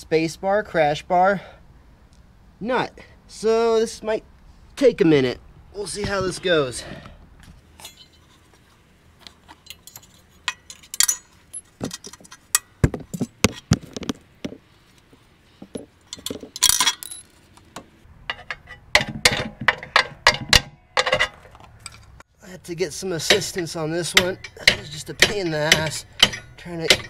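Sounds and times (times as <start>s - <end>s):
metal clinks and knocks: 7.8s - 8.6s, 9.4s - 14.2s, 15.6s - 17.4s, 18.2s - 22.2s, 23.2s - 27.0s
metal parts rattling: 9.6s - 14.1s, 15.7s - 17.5s, 18.3s - 22.2s, 23.2s - 27.0s.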